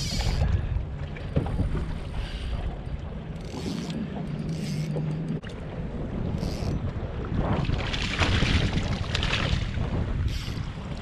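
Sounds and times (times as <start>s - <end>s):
wind and water rumble: 0.0s - 11.0s
fishing reel cranking: 3.4s - 5.0s, 6.3s - 6.8s.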